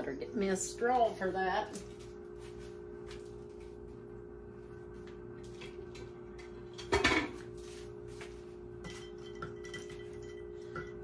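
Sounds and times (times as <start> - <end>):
kitchenware clattering: 6.6 - 7.5, 8.8 - 11.0.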